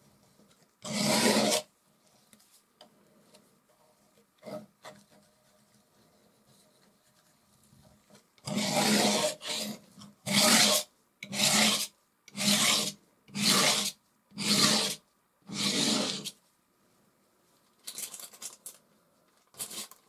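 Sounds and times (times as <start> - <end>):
palette knife scraping canvas: 0.8 - 1.7, 8.4 - 16.4, 19.6 - 20.0.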